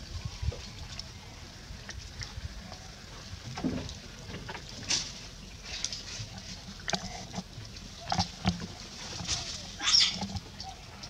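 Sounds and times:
sharp crackles of leaves: 0.0s - 11.0s
leaves rustling and clicking: 2.6s - 11.0s.

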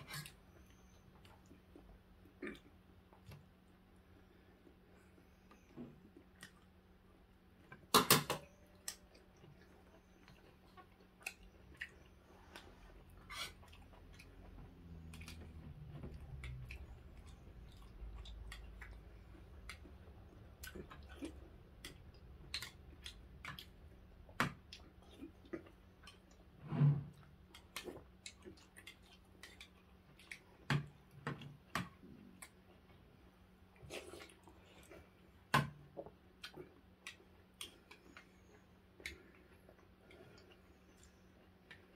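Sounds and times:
quiet chewing: 0.0s - 7.9s, 8.6s - 41.9s.

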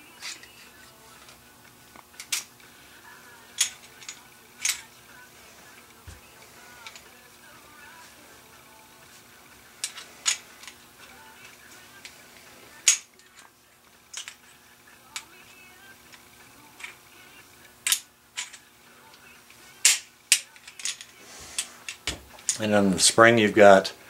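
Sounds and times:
faint steady hum: 0.0s - 24.0s
metallic clicks of pistol parts: 2.1s - 2.5s, 3.6s - 4.8s, 14.1s - 14.4s, 17.8s - 18.6s.

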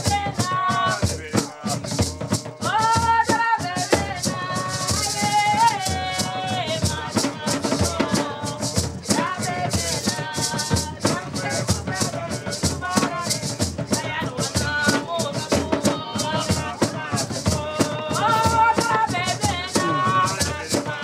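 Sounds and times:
hand drums: 0.0s - 21.0s
shaker: 0.0s - 21.0s
voices singing: 0.0s - 21.0s.

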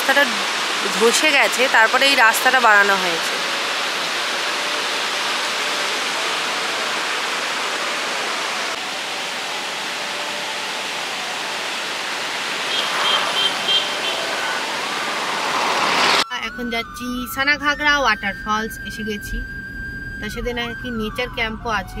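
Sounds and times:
water rushing: 0.0s - 16.2s.

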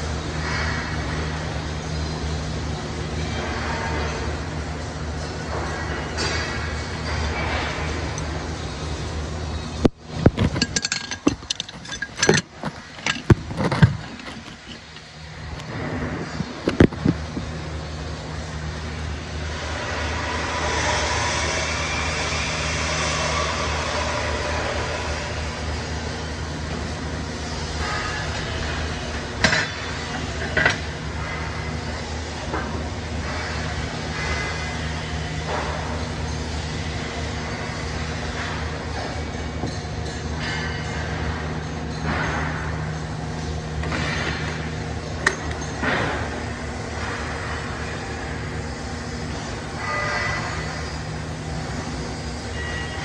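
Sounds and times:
workshop machine hum: 0.0s - 53.0s
metal pipe pieces clinking: 9.8s - 15.2s.

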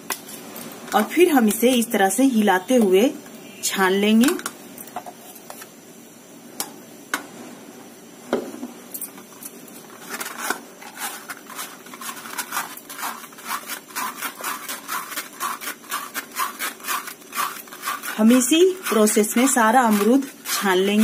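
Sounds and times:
rhythmic scraping of sieve: 9.7s - 21.0s.

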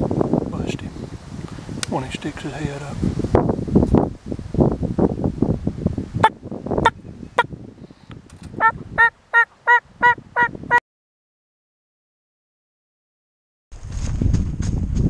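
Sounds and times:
turkey clucking: 8.6s - 10.6s
turkey yelping: 8.6s - 10.6s.

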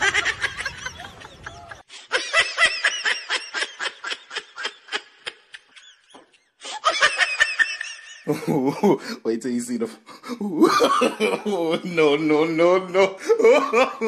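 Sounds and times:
rapid snickering laughter: 0.0s - 8.8s.

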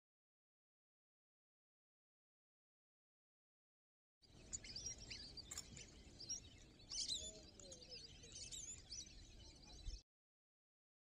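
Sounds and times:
birds chirping: 4.2s - 10.0s.

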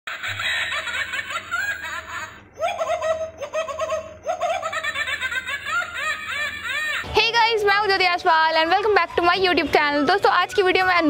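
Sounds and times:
toy's electronic giggling: 0.2s - 7.1s.

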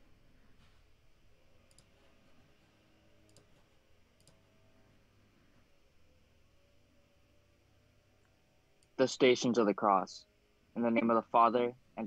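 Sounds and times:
faint clicks: 1.6s - 2.2s, 3.3s - 4.5s.

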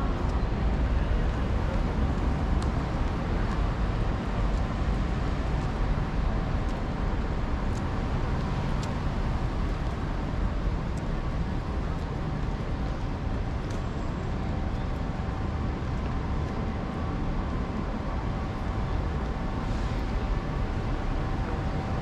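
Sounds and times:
traffic rumble: 0.0s - 22.0s
light ticks: 1.3s - 17.7s.

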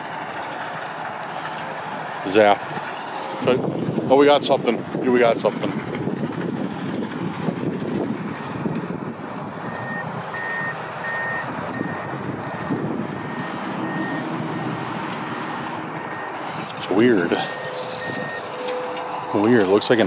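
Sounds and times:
machinery low rumble: 0.0s - 20.0s
reversing alarm beeping: 9.6s - 16.4s, 17.2s - 19.3s.

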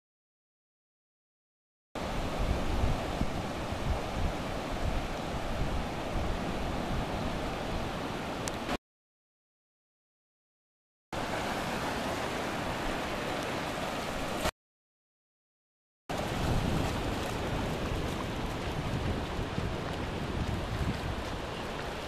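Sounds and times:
ocean surf breaking: 2.0s - 8.8s, 11.2s - 14.5s, 16.1s - 22.0s.

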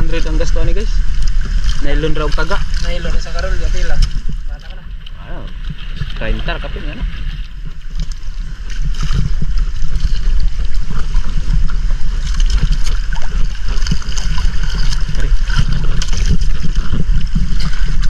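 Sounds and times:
low wind rumble on microphone: 0.0s - 18.0s
water splashing against canoe: 0.0s - 18.0s.

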